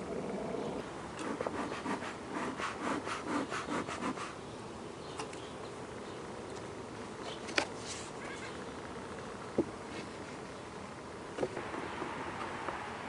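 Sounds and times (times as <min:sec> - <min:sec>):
honey bees humming: 0:00.0 - 0:13.0
rustling and rubbing: 0:07.3 - 0:08.9.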